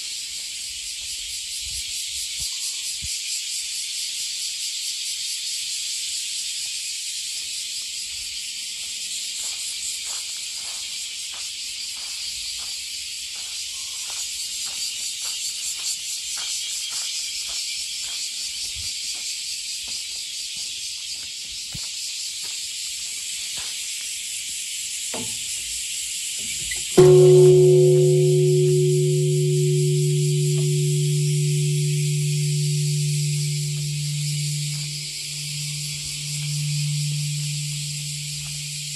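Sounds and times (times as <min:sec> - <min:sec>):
steady high hiss: 0:26.5 - 0:38.9
large temple bell ringing: 0:26.9 - 0:38.9.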